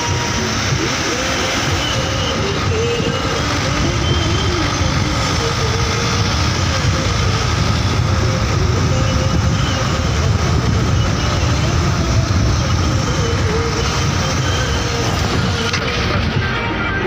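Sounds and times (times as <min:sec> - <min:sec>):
vehicle engine and road noise: 0:00.0 - 0:17.0.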